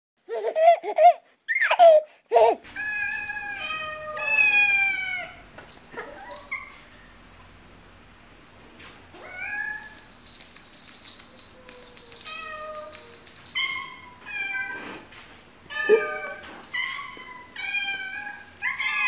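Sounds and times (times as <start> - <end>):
cat meowing: 2.8 - 5.4, 15.7 - 19.0.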